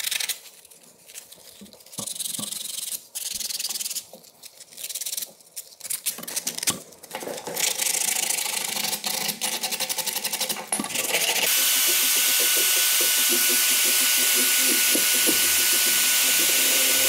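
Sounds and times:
sandpaper rasping on a knife blade: 0:02.0 - 0:04.0.

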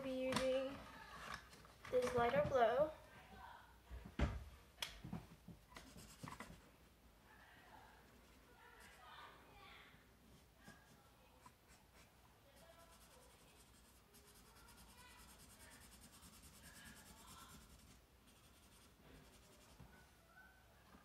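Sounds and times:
marker scribbling on paper: 0:05.8 - 0:06.6, 0:10.7 - 0:19.8.

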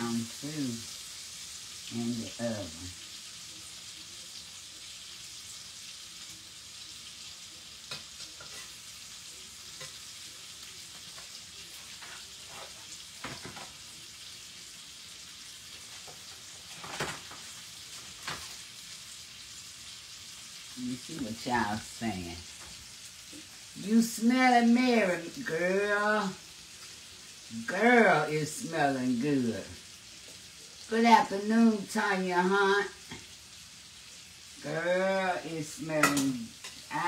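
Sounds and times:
food sizzling in a pan: 0:00.0 - 0:37.0
metal spatula clinking on cookware: 0:07.9 - 0:08.8.

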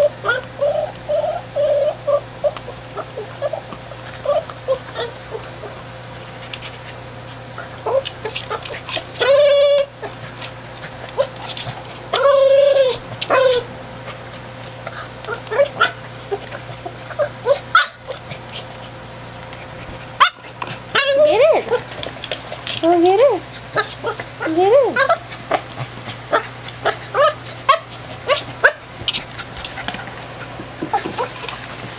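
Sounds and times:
dog whimpering: 0:00.0 - 0:05.8, 0:07.6 - 0:10.2, 0:12.1 - 0:13.7, 0:14.9 - 0:18.7, 0:20.2 - 0:22.0, 0:22.8 - 0:28.8
dog whining: 0:00.0 - 0:05.9, 0:07.5 - 0:19.0, 0:19.9 - 0:29.4, 0:30.8 - 0:31.8.

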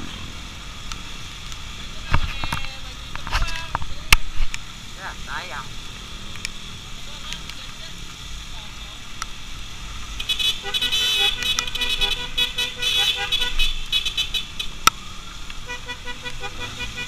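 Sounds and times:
road and engine noise: 0:00.0 - 0:17.0
vehicle horns honking: 0:10.2 - 0:14.8, 0:15.6 - 0:17.0.

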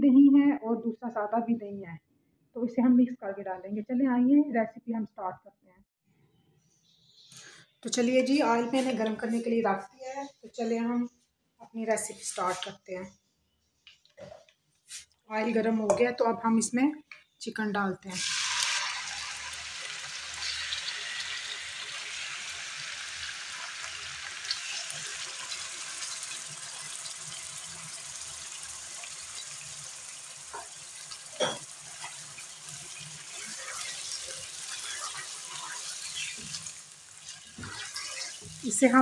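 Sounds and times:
chicken sizzling in hot oil: 0:18.2 - 0:39.0.

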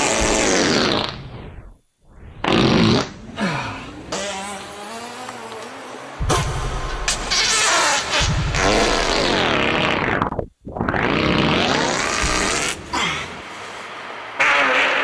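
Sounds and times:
farts through synth looper: 0:00.0 - 0:01.7, 0:02.4 - 0:03.2, 0:06.4 - 0:12.9, 0:14.4 - 0:15.0
long wavering pitched fart: 0:00.0 - 0:03.4, 0:04.0 - 0:13.4, 0:14.3 - 0:15.0.

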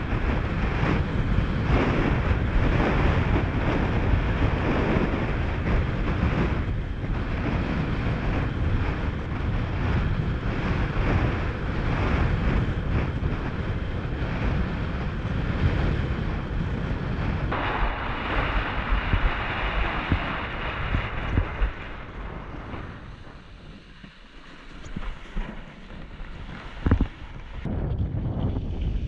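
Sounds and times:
wind buffeting microphone: 0:00.0 - 0:29.0
hissing rush of spray: 0:17.5 - 0:25.8
rushing water: 0:17.5 - 0:27.7.

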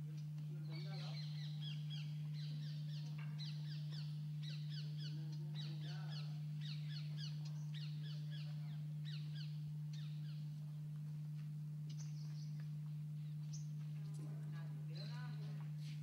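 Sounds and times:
steady low hum: 0:00.0 - 0:16.0
birds chirping: 0:00.2 - 0:10.9, 0:11.8 - 0:14.1.

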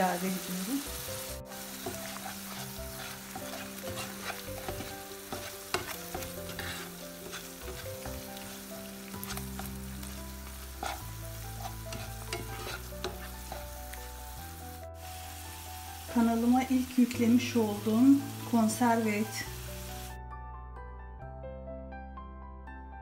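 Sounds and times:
food sizzling in frying pan: 0:00.0 - 0:20.2
spatula scraping and tapping pan: 0:01.8 - 0:09.8, 0:10.4 - 0:14.1.

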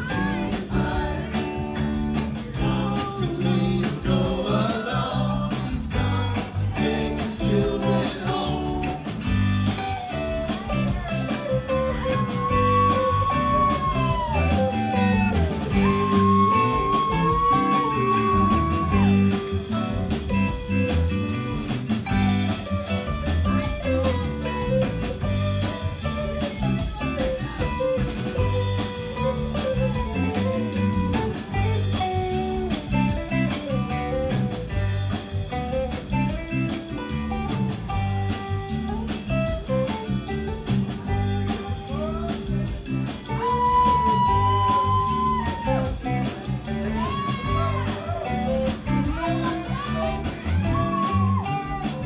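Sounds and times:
bass guitar: 0:00.0 - 0:52.0
drum kit: 0:00.0 - 0:52.0
keyboards: 0:00.0 - 0:52.0
lead electric guitar: 0:00.0 - 0:52.0.

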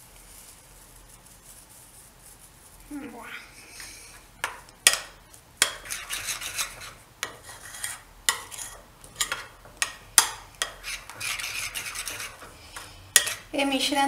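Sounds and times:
spoon stirring wet paste: 0:03.5 - 0:13.8.

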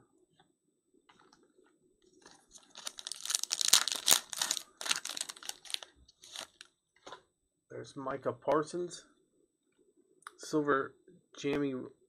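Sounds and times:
foil wrapper tearing and crinkling: 0:02.5 - 0:06.6.

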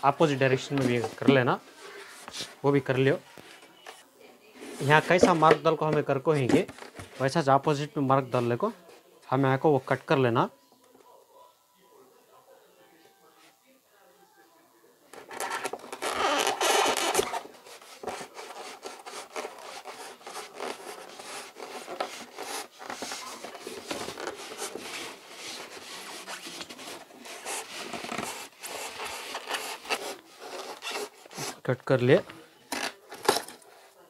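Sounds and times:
blade cutting polystyrene: 0:16.0 - 0:31.6.

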